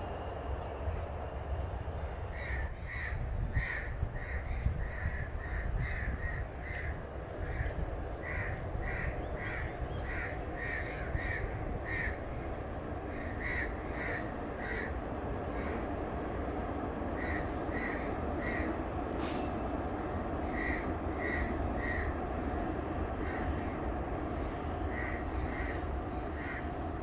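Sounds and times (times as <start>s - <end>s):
metro train rumble: 0.0s - 27.0s
crows cawing: 2.4s - 12.3s, 13.1s - 16.0s, 17.2s - 18.8s, 20.4s - 22.2s, 23.2s - 23.9s, 24.9s - 26.7s.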